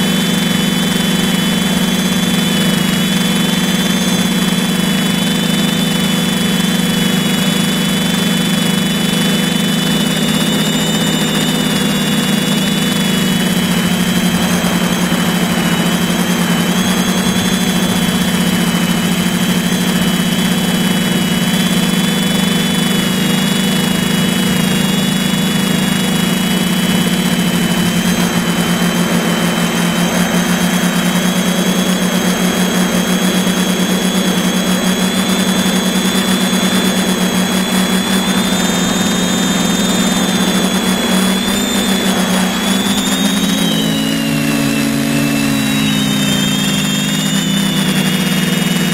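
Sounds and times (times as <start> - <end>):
drone motors humming: 0.0 - 48.9
propeller whine: 0.0 - 48.9.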